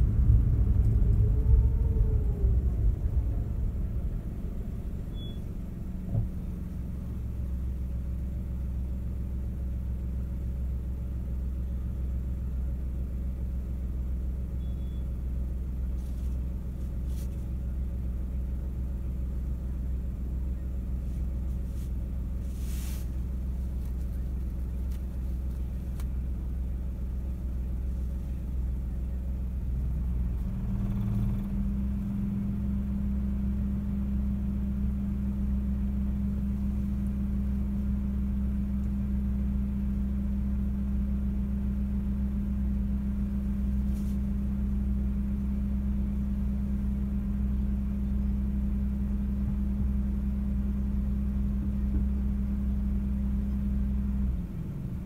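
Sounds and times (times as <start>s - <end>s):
car engine and road rumble: 0.0s - 55.0s
short rush of noise: 21.7s - 23.2s.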